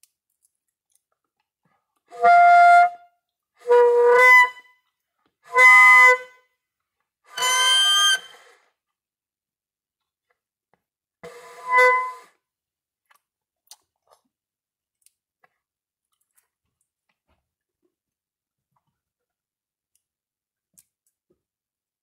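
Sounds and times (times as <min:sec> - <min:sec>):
saxoflute note: 0:11.4 - 0:12.3.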